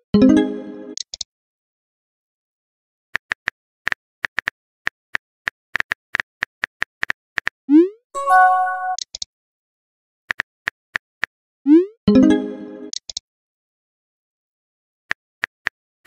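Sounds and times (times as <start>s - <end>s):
chime of held notes: 8.2s - 9.0s.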